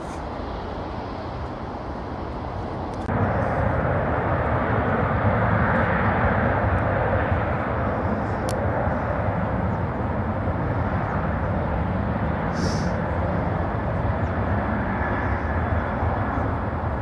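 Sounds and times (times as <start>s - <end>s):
jet engines rumbling: 0.0s - 17.0s
brief high hiss: 12.6s - 13.0s.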